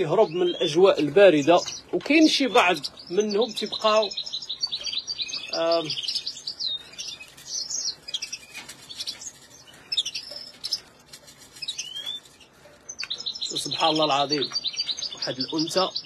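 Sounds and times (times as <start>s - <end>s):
birds chirping and trilling: 0.0s - 16.0s.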